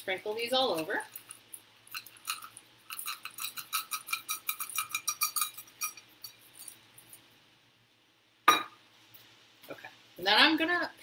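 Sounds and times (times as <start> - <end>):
chocolate chips clinking into pan: 0.8 - 6.8.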